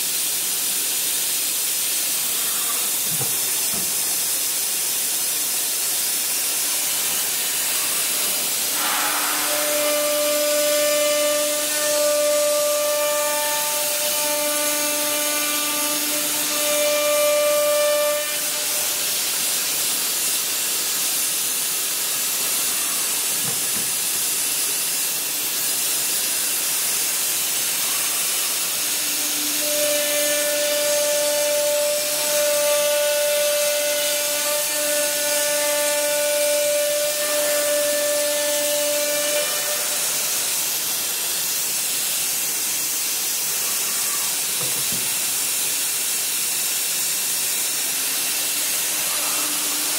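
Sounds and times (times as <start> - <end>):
router cutting wood: 6.5 - 19.5, 27.4 - 41.3, 47.8 - 49.9.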